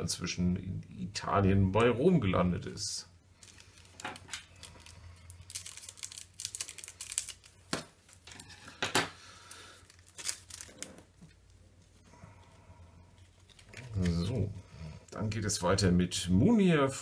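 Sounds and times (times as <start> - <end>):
foil pack tearing and crinkling: 3.4 - 8.6, 9.4 - 11.2.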